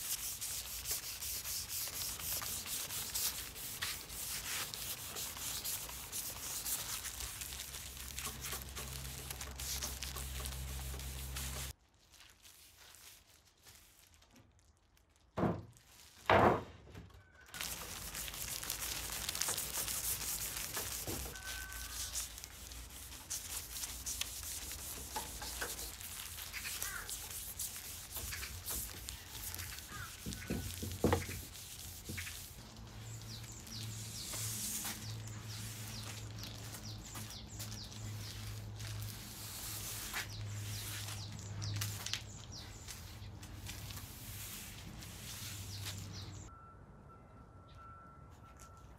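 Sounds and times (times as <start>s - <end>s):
cloth pad rubbing wood: 0.0s - 11.7s, 17.6s - 42.0s.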